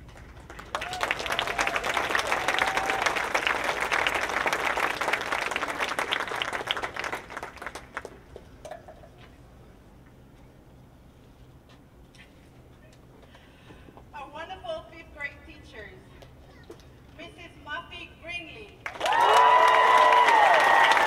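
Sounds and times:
audience applause: 0.0s - 8.2s, 18.8s - 21.0s.

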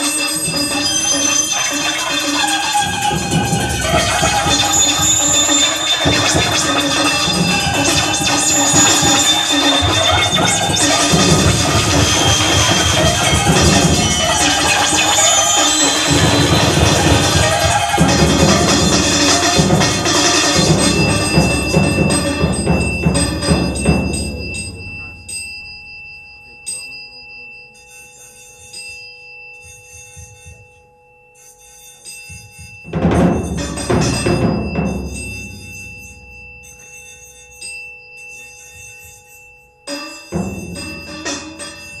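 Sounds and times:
high electronic flutter: 0.0s - 24.0s
electronic music held tones: 0.0s - 42.0s.

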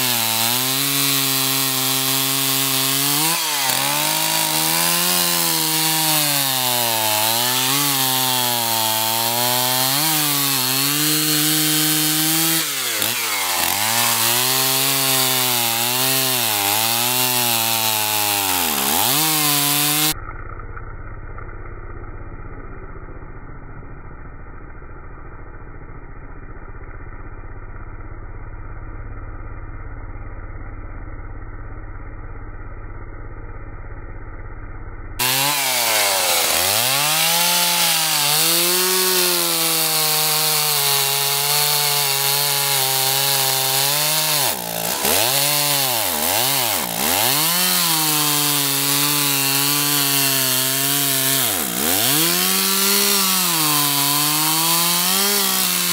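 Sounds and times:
chainsaw cutting log: 0.0s - 20.2s, 35.2s - 55.9s.

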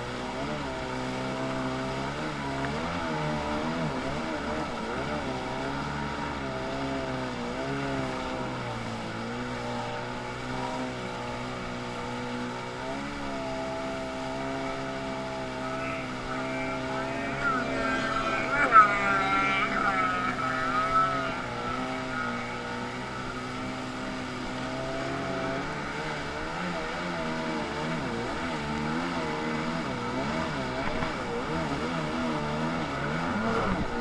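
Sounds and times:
jet ski engine revving: 0.0s - 34.0s
water rushing and spraying: 0.0s - 34.0s.

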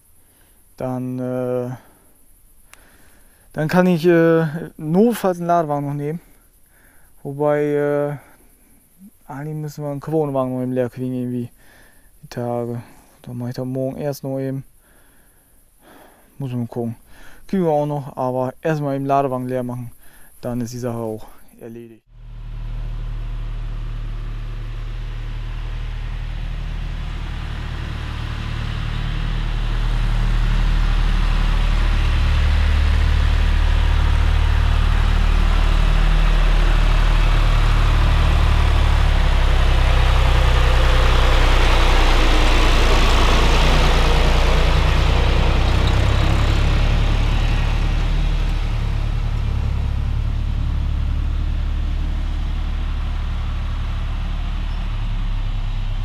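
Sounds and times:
tractor engine running: 22.1s - 56.0s.

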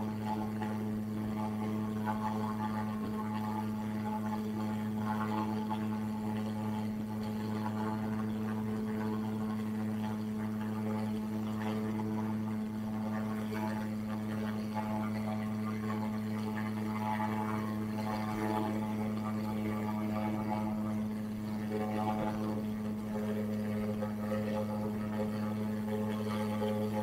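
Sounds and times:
faint fluttering noise: 0.0s - 27.0s
steady low drone: 0.0s - 27.0s.

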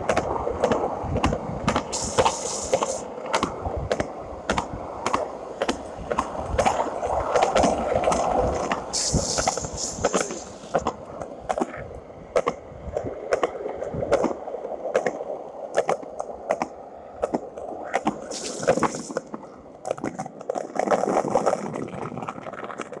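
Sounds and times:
wheels clacking over pavement joints: 0.0s - 12.6s
skateboard wheels rolling on concrete: 0.0s - 23.0s.

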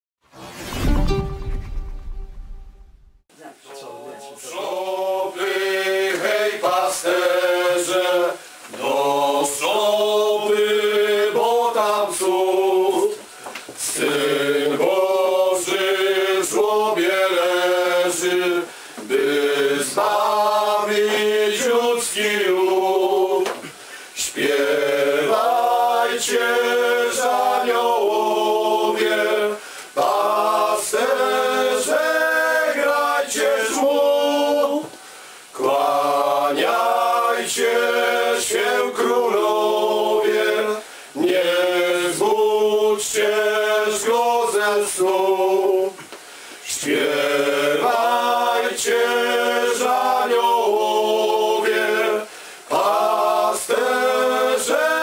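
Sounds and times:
group singing a carol: 3.7s - 55.0s.

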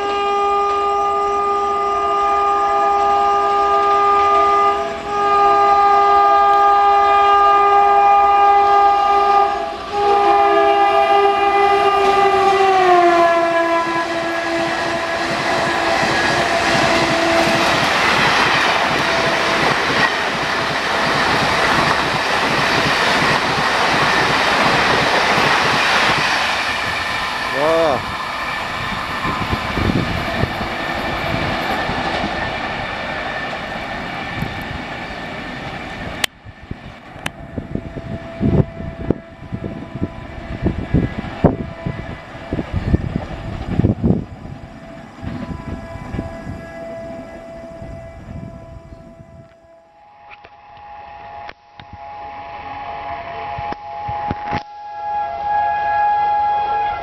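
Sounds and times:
locomotive horn blasts: 0.0s - 19.8s, 37.2s - 42.6s, 44.7s - 57.0s
train wheels clattering: 14.7s - 35.8s.

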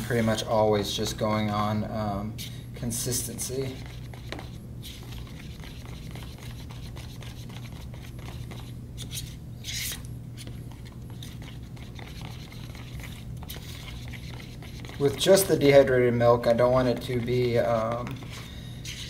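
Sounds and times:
spoon scraping plastic tub: 16.8s - 19.0s.

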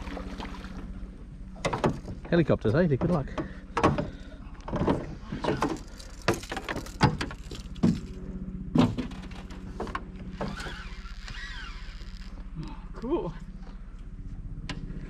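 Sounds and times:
steady low drone: 0.0s - 15.0s
knocks in aluminium boat: 1.6s - 8.1s, 8.7s - 10.0s.

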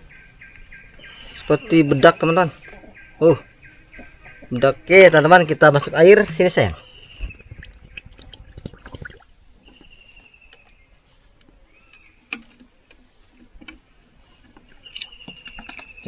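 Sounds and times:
water splashing into plastic tank: 7.2s - 9.4s.

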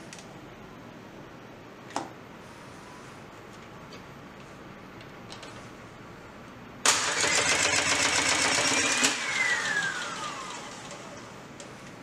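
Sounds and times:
motor whine: 7.2s - 11.4s.

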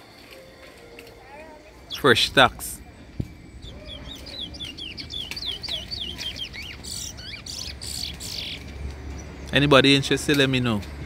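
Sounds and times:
finch singing whistled notes: 3.5s - 9.6s.

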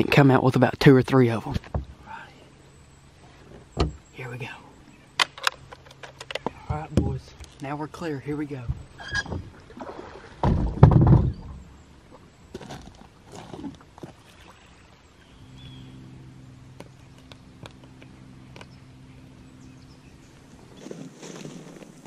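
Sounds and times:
heavy thumps on boat deck: 3.8s - 4.0s, 10.4s - 11.6s
footsteps on loose shale: 12.5s - 14.2s, 20.3s - 22.0s.

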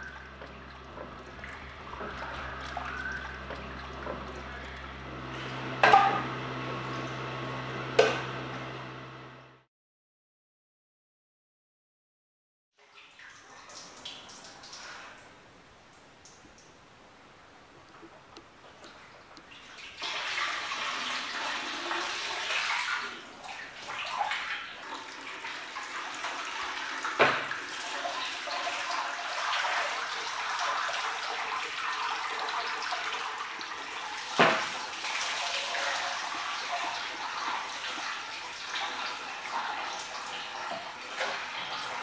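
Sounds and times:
whey splashing and trickling: 0.0s - 5.6s.

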